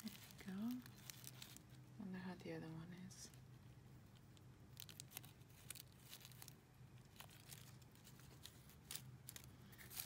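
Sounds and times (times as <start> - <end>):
tissue paper rustling: 0.0 - 1.7, 4.8 - 10.0
light clicks and crinkles: 0.0 - 1.9, 2.8 - 10.0
low room hum: 0.0 - 10.0.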